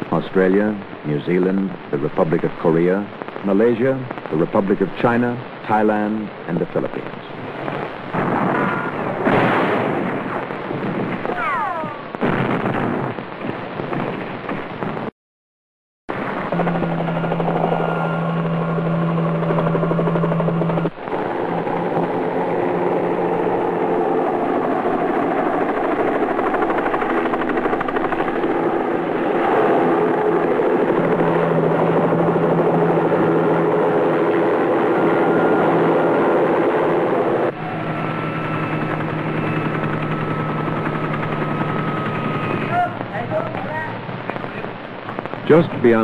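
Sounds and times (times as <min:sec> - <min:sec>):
helicopters flying over: 0:16.1 - 0:46.0.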